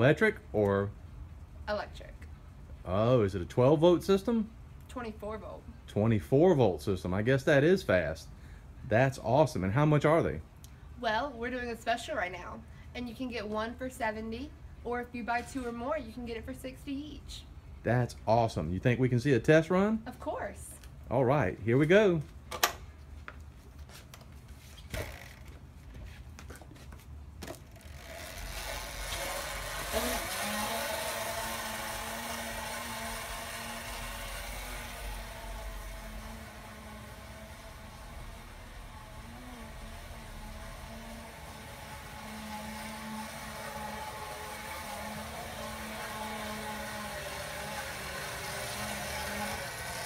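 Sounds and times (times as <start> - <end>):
low hum: 27.6 - 50.0
electric motor whirring: 27.7 - 50.0.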